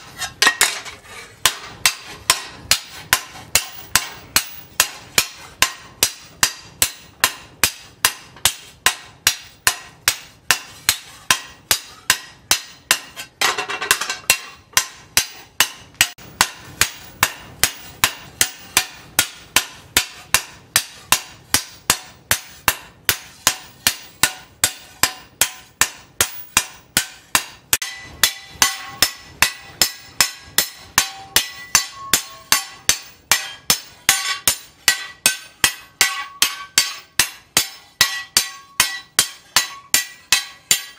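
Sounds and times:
metal clatter: 0:00.0 - 0:06.1, 0:12.9 - 0:14.9
sledgehammer striking steel blade: 0:00.0 - 0:40.9
steel disc ringing: 0:23.5 - 0:40.9.

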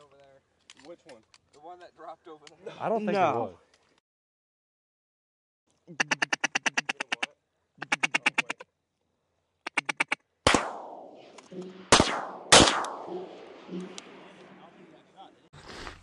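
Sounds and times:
duck call quacking: 0:05.9 - 0:08.6, 0:09.6 - 0:10.2
shotgun blasts echoing: 0:10.5 - 0:15.1.

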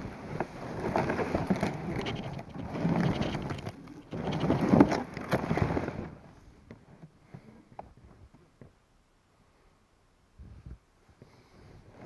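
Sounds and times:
plastic sled sliding over snow: 0:00.0 - 0:08.3.

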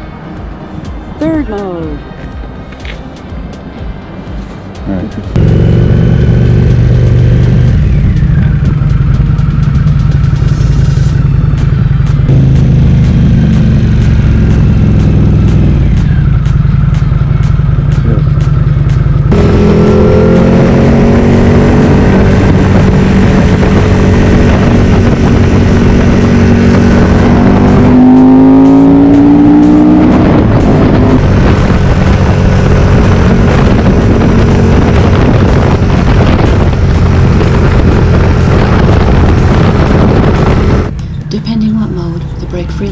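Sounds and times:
motorcycle engine running: 0:05.3 - 0:42.9
wind rush: 0:19.3 - 0:41.5.

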